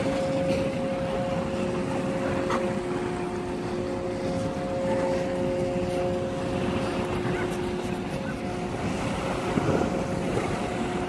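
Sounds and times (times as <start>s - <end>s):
distant harbour droning hum: 0.0s - 11.0s
wind rumble on microphone: 0.0s - 11.0s.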